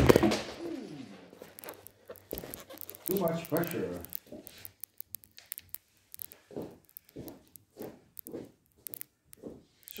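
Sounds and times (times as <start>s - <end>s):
broken glass grating and crackling: 1.2s - 6.9s
sharp ticks: 1.5s - 10.0s.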